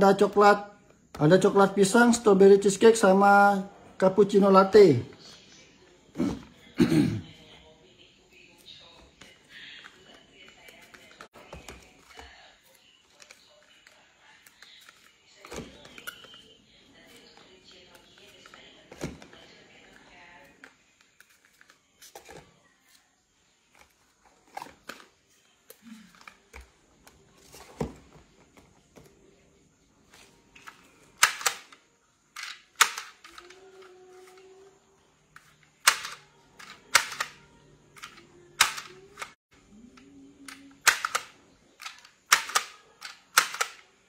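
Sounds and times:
small boxes and bottles clicking: 0:09.2 - 0:22.5, 0:30.6 - 0:34.5, 0:35.3 - 0:43.9.

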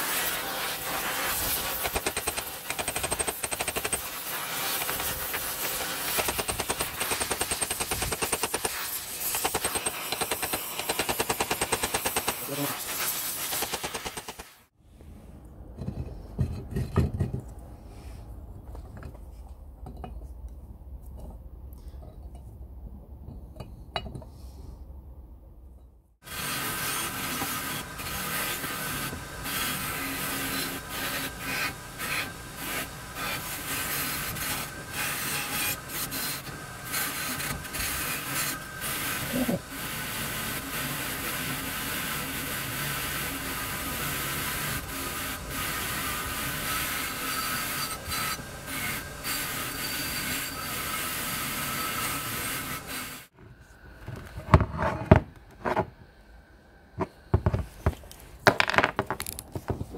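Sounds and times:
metal clinks and knocks: 0:18.7 - 0:20.4
bench grinder scraping metal: 0:26.3 - 0:39.5, 0:40.1 - 0:53.2.

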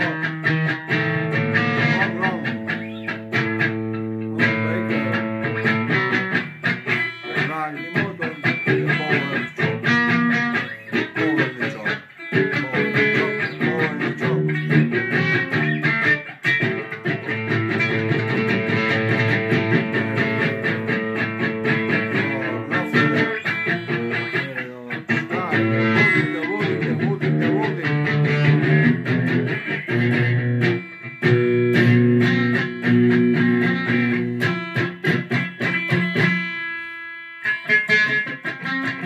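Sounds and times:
man singing: 0:00.0 - 0:00.6, 0:01.7 - 0:02.7, 0:04.3 - 0:05.3, 0:06.9 - 0:16.0, 0:19.7 - 0:29.6
electric guitar strumming chords: 0:00.0 - 0:39.0.

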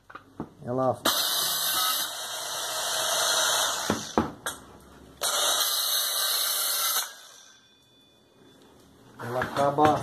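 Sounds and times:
mini circular saw cutting: 0:01.1 - 0:04.2, 0:05.2 - 0:07.6.

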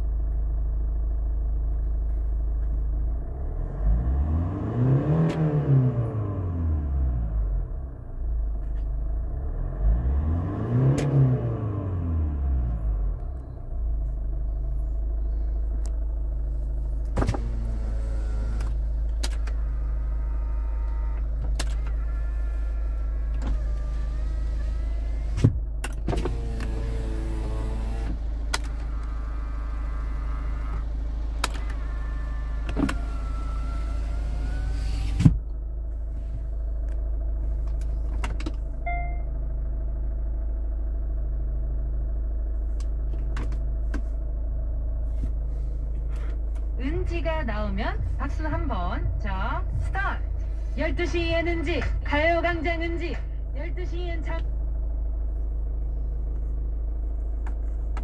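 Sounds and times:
diesel engine idling: 0:00.0 - 0:04.6, 0:05.9 - 0:58.0
power window motors whining: 0:16.9 - 0:35.6.

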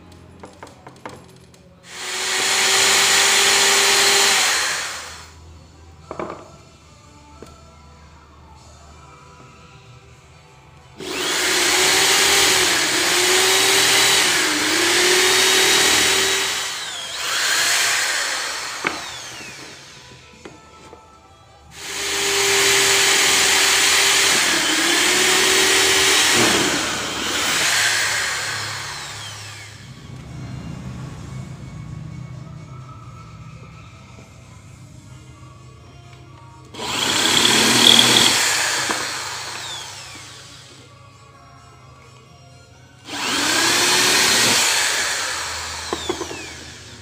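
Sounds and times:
electric drill boring into wood: 0:01.9 - 0:05.4, 0:11.0 - 0:20.2, 0:21.7 - 0:29.9, 0:36.8 - 0:40.8, 0:43.0 - 0:47.0.

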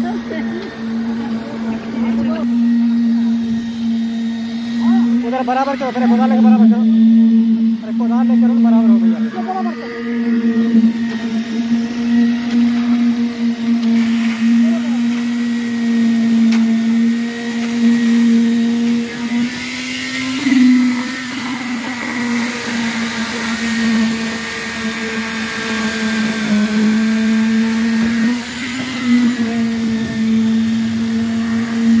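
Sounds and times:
concrete vibrator high-pitched hum: 0:00.0 - 0:32.0.

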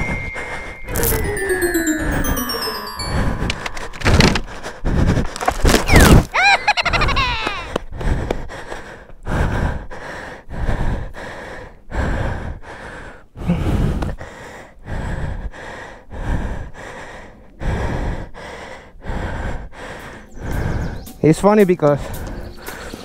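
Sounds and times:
man panting hard: 0:04.4 - 0:05.7, 0:07.6 - 0:21.1, 0:22.0 - 0:23.0.

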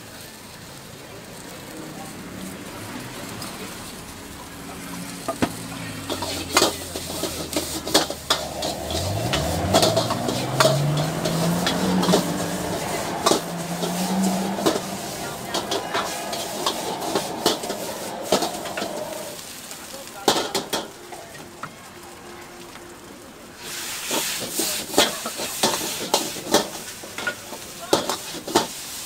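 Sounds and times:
noodles sizzling: 0:00.0 - 0:29.0
metal ladle clanking on wok: 0:06.0 - 0:19.0.

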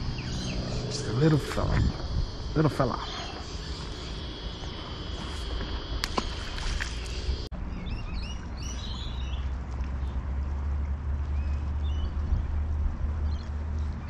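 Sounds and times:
high insect drone: 0:00.0 - 0:07.5
small birds chirping: 0:00.0 - 0:10.2
steady low rumble: 0:00.0 - 0:14.0.

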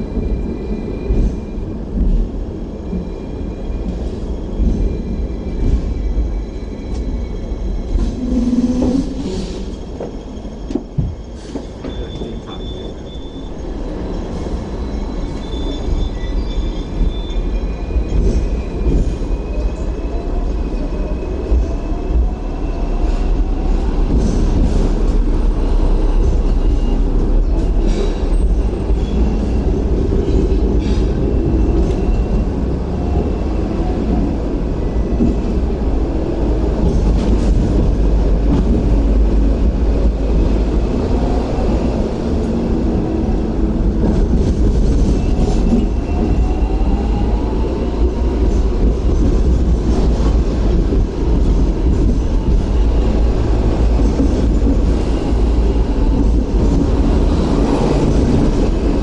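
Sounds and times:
tram wheels rumbling: 0:00.0 - 0:59.0
faint high wheel squeal: 0:03.2 - 0:21.3.

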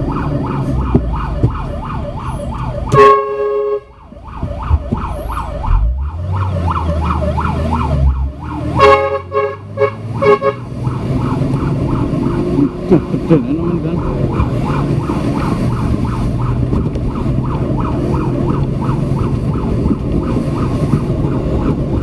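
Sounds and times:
fire truck siren yelping: 0:00.0 - 0:22.0
truck engine: 0:00.0 - 0:22.0
truck horn blasts: 0:02.9 - 0:04.0, 0:08.7 - 0:10.7.

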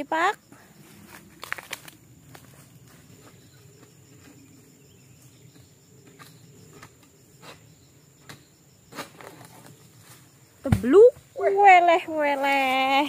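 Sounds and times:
light snaps and crackles: 0:01.4 - 0:02.5.

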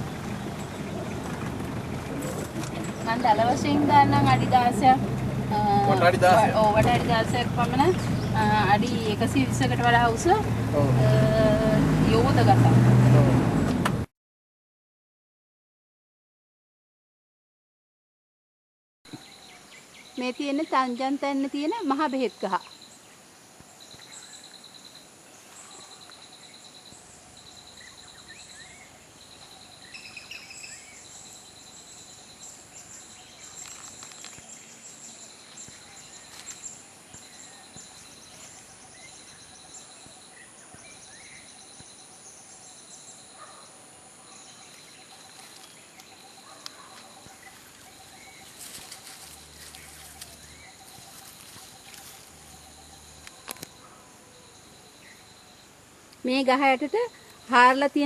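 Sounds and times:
bird chirps: 0:23.8 - 0:58.0.

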